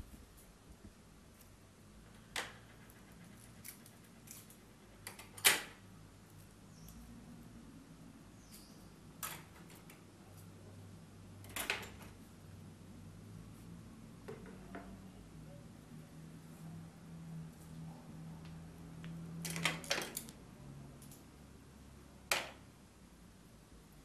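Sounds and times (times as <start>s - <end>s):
objects clicking on a table: 19.4s - 20.4s.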